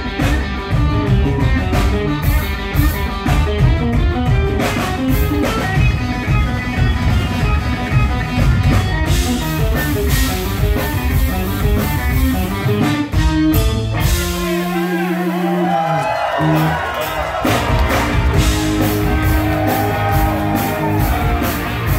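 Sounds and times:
drum beat: 0.0s - 14.6s, 16.4s - 21.9s
electric guitars: 0.0s - 21.9s.

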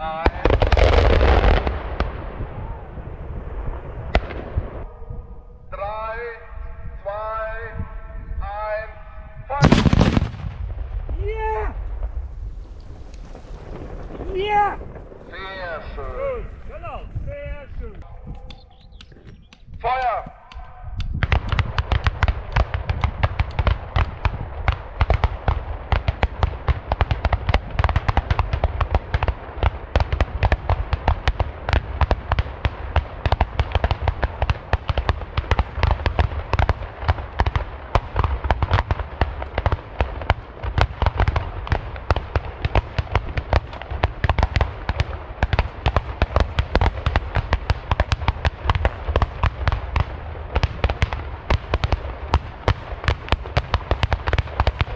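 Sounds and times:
salute guns firing bangs: 9.6s - 12.3s.

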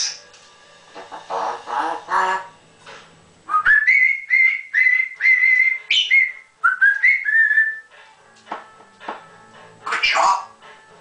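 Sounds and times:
parrot whistling: 3.5s - 7.9s.

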